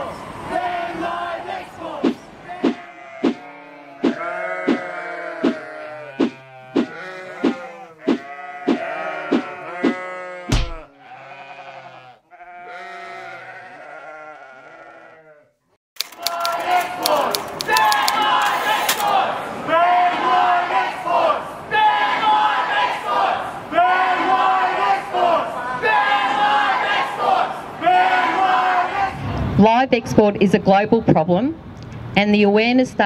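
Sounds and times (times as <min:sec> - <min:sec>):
sheep bleating: 0:02.6 - 0:15.6
heavy thud: 0:10.5 - 0:10.9
sharp clicks: 0:16.0 - 0:19.2.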